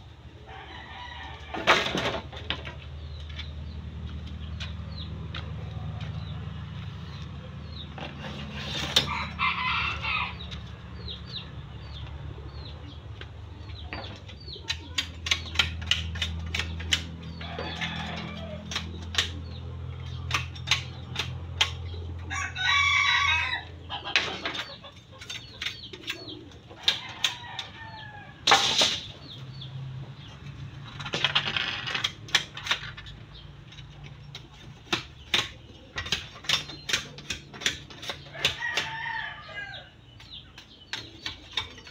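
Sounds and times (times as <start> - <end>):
chickens clucking: 0.0 - 30.8, 32.1 - 41.9
rooster crowing: 9.0 - 10.4, 22.3 - 23.8, 38.4 - 40.0
sharp knocks and clicks: 13.1 - 22.0, 30.8 - 39.0.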